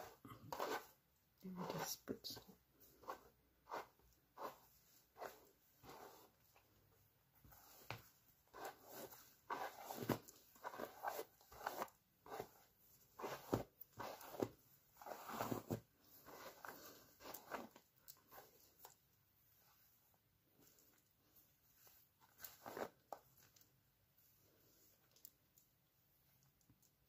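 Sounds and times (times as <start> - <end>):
hair being brushed: 0.0 - 1.0, 1.6 - 6.6, 7.4 - 18.5.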